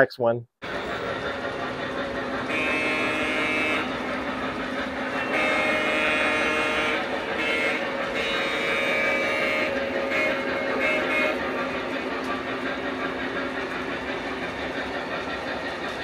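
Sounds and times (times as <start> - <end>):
train rumbling on track: 0.6 - 16.0
model train horn blasts: 2.5 - 4.0, 5.1 - 11.5.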